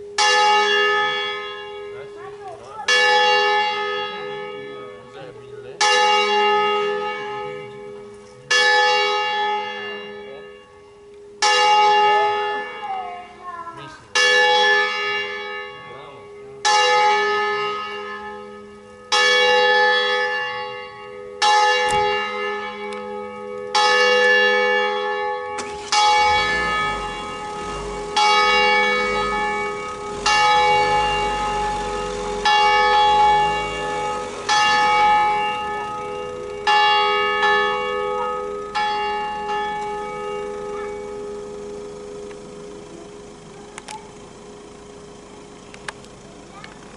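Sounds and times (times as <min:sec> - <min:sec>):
church bell ringing: 0:00.0 - 0:46.5.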